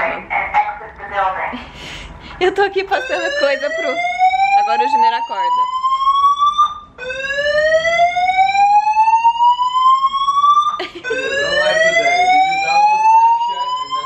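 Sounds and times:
fire alarm rising tone: 0:02.8 - 0:14.0.

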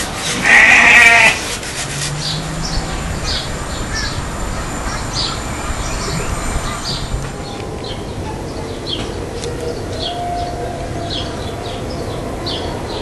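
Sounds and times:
farm animal bleating: 0:00.4 - 0:01.5.

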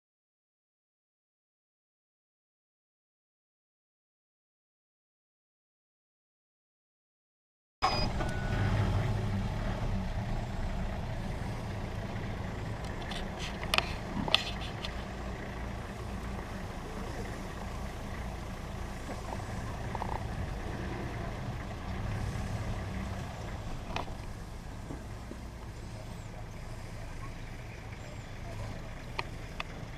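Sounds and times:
vehicle engine idling: 0:07.8 - 0:29.9.

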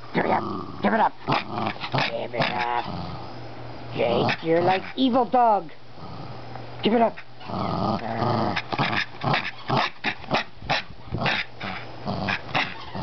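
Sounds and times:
small dog growling: 0:00.0 - 0:03.4, 0:06.0 - 0:06.4, 0:07.4 - 0:13.0.

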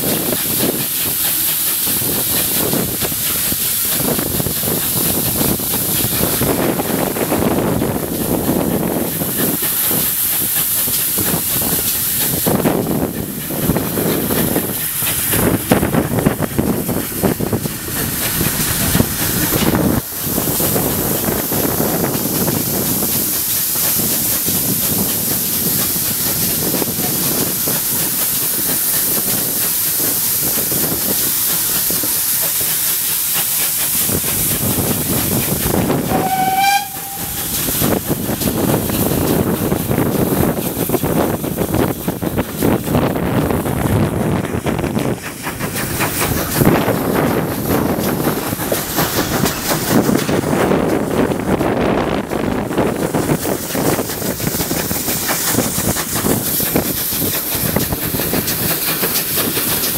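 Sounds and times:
hiss and rush of steam: 0:00.0 - 0:59.9
wind on microphone: 0:01.9 - 0:32.1, 0:33.9 - 0:59.9
steam whistle: 0:36.0 - 0:37.9.

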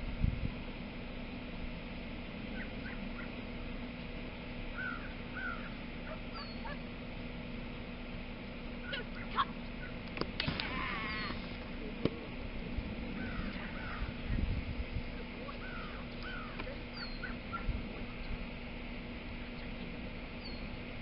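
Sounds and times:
steady hum: 0:00.0 - 0:21.0
birds chirping: 0:02.4 - 0:21.0
sharp clicks: 0:10.0 - 0:12.2.

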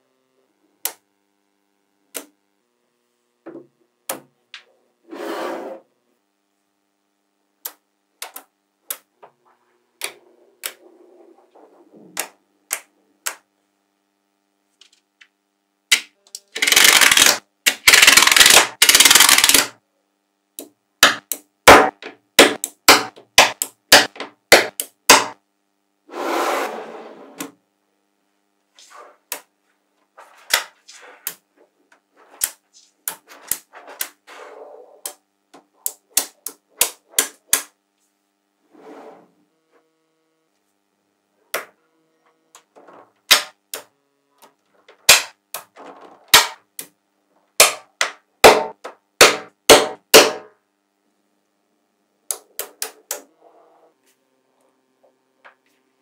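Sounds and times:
scraping sound: 0:05.0 - 0:05.9, 0:10.2 - 0:12.2, 0:26.1 - 0:27.4, 0:32.2 - 0:35.1, 0:38.6 - 0:39.4
magnetic balls clicking together: 0:07.6 - 0:09.1, 0:15.9 - 0:19.8, 0:32.3 - 0:34.2, 0:35.0 - 0:37.8.

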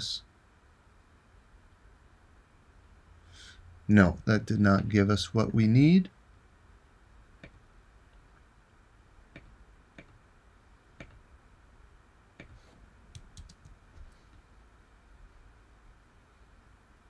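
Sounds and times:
computer mouse clicks: 0:07.4 - 0:07.6, 0:09.3 - 0:10.2, 0:11.0 - 0:11.2, 0:12.4 - 0:13.8.

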